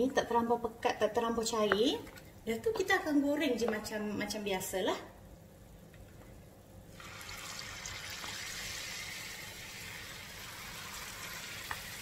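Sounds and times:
batter sizzling in hot oil: 6.9 - 12.0.

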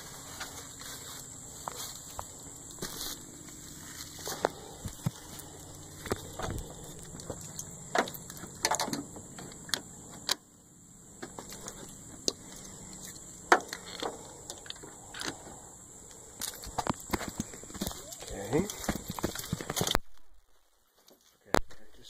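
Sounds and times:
low steady hum: 0.0 - 21.0
handling clicks and rattles: 4.3 - 10.4.

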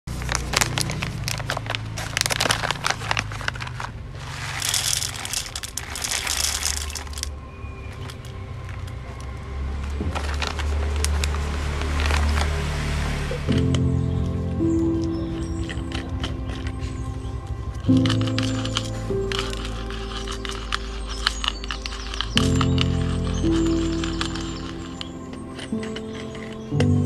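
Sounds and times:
coffee bag crinkling: 0.0 - 9.4, 10.0 - 27.0
coffee beans pouring into grinder: 4.4 - 7.3, 17.7 - 26.4.

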